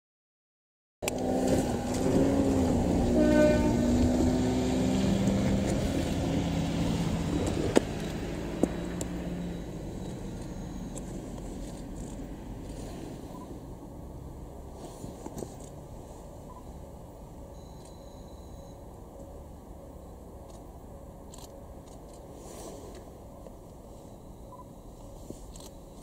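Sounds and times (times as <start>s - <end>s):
diesel railcar engine running: 1.0s - 26.0s
brief higher tone: 3.0s - 5.0s, 17.5s - 18.9s.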